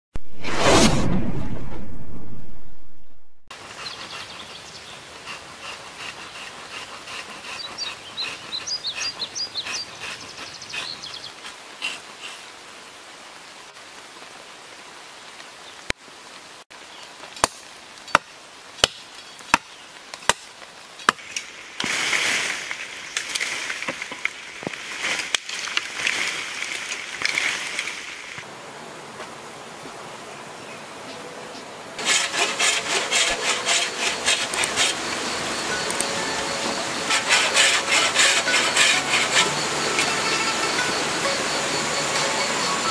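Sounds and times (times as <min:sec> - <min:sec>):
rustling and crackling: 0:20.1 - 0:28.4
blade chopping bamboo: 0:32.0 - 0:35.0, 0:37.0 - 0:39.6.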